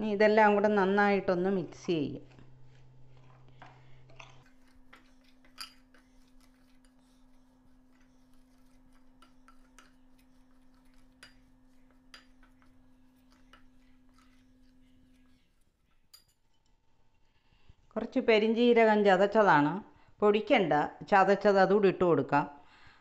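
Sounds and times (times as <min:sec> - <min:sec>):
metal spoon scraping glass bowl: 0:04.2 - 0:16.6.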